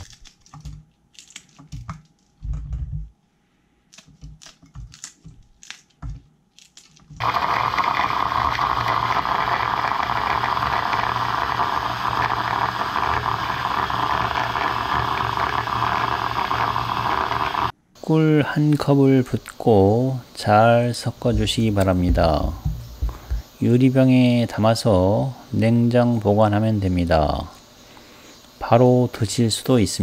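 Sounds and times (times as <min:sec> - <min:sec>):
scissors snipping peppers: 0:00.0 - 0:02.2, 0:03.9 - 0:07.2
hand blender grinding: 0:07.2 - 0:17.7.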